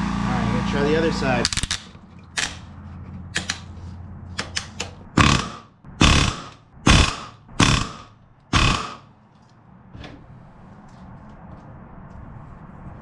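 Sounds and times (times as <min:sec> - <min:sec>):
pneumatic rivet gun hammering: 0:04.5 - 0:09.0.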